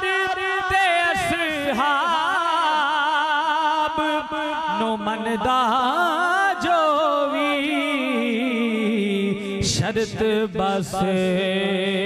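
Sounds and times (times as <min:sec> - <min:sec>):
man singing into microphone: 0:00.0 - 0:12.0.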